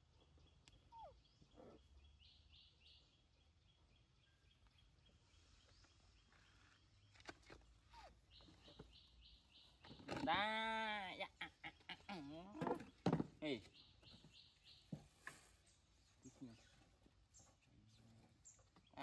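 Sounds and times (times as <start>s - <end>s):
soft high chirp: 0.5s - 1.8s.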